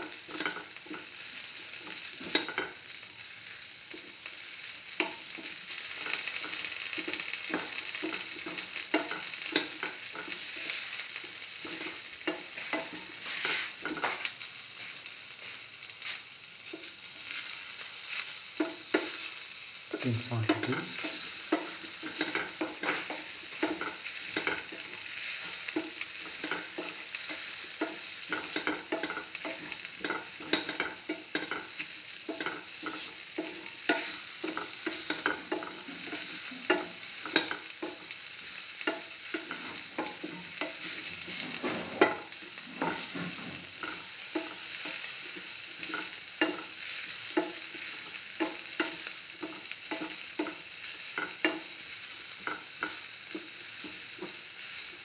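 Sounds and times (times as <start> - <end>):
food sizzling in oil: 0.0 - 55.0
spatula scraping a pan: 11.6 - 14.2, 20.6 - 38.2, 38.8 - 51.8.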